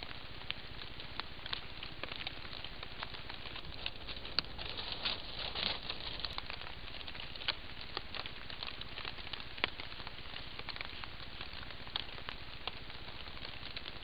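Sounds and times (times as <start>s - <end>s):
water drops pattering on foliage: 0.0s - 14.0s.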